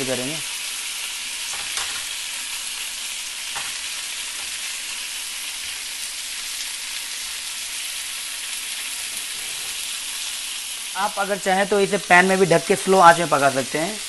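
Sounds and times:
meat sizzling in a hot pan: 0.0s - 14.0s.

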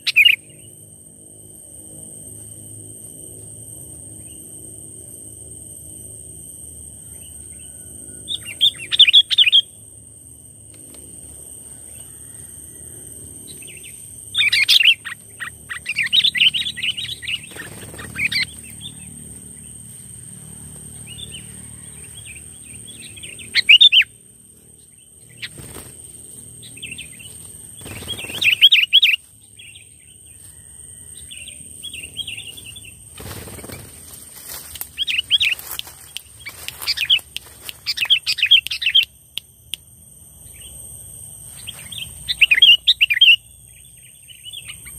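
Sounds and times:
bird chirping song: 0.0s - 0.8s, 7.0s - 9.8s, 13.4s - 19.8s, 20.9s - 24.2s, 26.6s - 33.8s, 35.0s - 39.1s, 41.5s - 44.9s.

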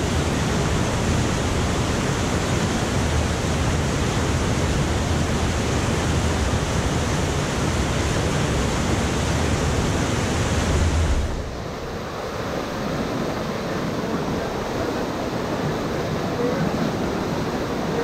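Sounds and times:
rapids roaring over rocks: 0.0s - 18.0s.

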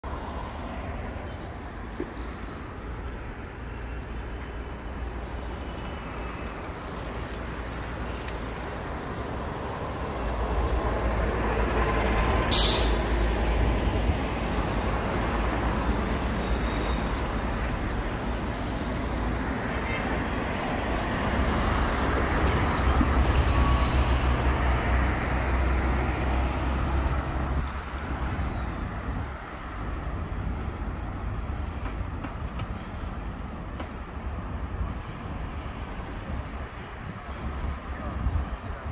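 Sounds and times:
heavy vehicles rumbling past: 0.0s - 38.9s
air brake hiss: 12.5s - 13.4s.

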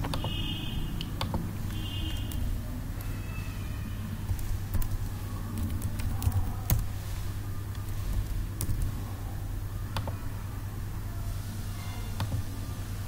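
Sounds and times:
keyboard and mouse clicks: 0.0s - 0.4s, 1.0s - 2.4s, 7.7s - 9.0s
steady low hum: 0.0s - 13.0s.

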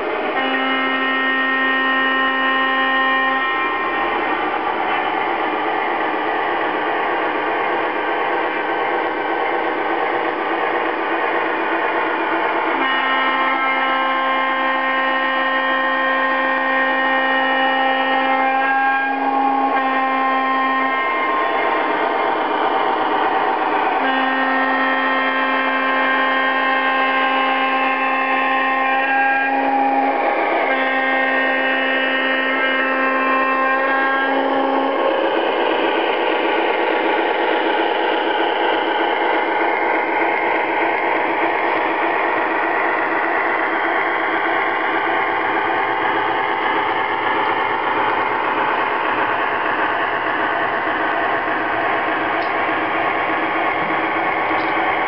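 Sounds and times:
locomotive running noise: 0.0s - 55.0s
model train rolling rumble: 0.0s - 55.0s
model locomotive horn blasts: 0.3s - 5.0s, 12.8s - 22.1s, 23.8s - 37.7s.

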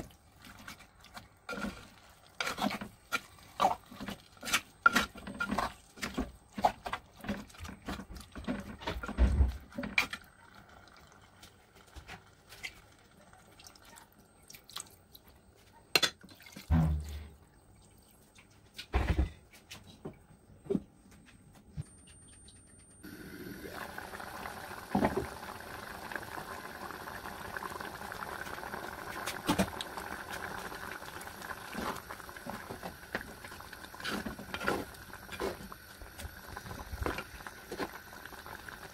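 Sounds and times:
curry simmering bubbling hiss: 23.0s - 38.9s.

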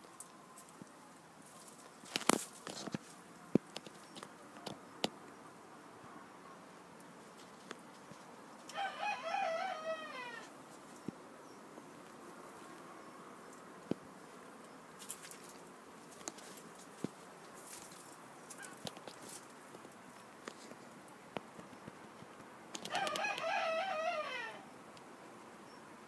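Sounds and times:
rooster crowing: 8.7s - 10.5s, 22.8s - 24.8s.

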